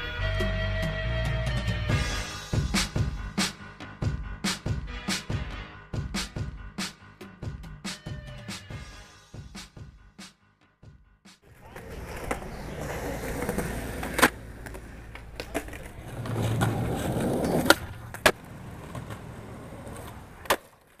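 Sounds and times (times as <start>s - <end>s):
skateboard clacking on ground: 11.5s - 21.0s
skateboard wheels rolling on concrete: 11.5s - 21.0s.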